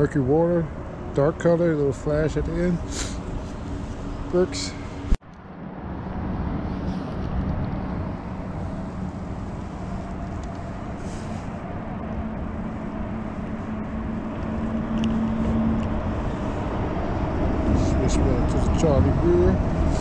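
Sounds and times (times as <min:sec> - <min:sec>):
droning mechanical hum: 0:00.0 - 0:20.0.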